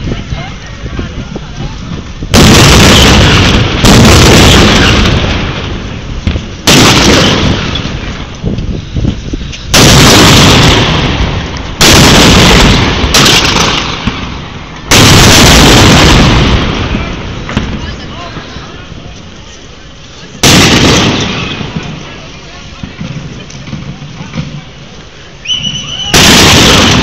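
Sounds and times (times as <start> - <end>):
cannons booming: 1.9 - 8.4, 9.7 - 18.6, 20.4 - 24.8, 26.0 - 27.0.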